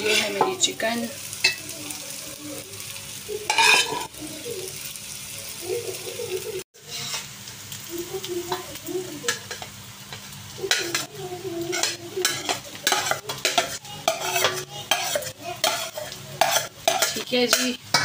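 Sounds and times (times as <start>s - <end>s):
metal spoon scraping and clinking: 0.0s - 0.5s, 3.5s - 4.1s, 11.7s - 18.0s.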